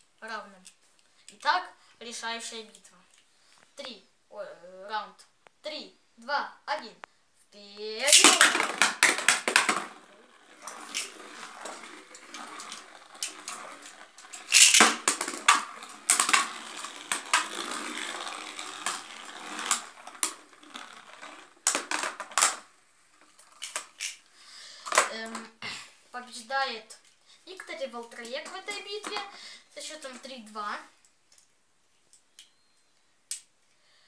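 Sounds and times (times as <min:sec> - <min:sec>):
spinning tops whirring: 0:08.0 - 0:24.2.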